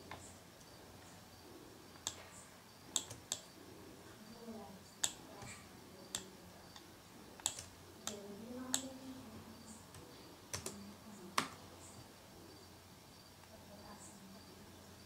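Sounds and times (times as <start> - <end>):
mouse and keyboard clicks: 2.0 - 2.3, 2.9 - 3.5, 5.0 - 8.9.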